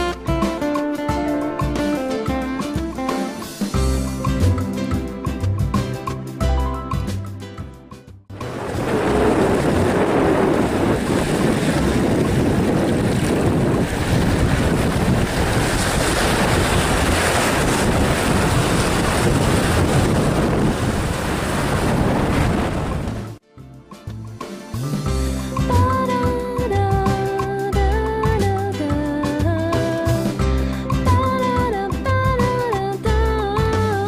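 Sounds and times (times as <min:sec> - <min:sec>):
wind buffeting the microphone: 0:08.4 - 0:23.3
small waves washing on shore: 0:08.4 - 0:23.4.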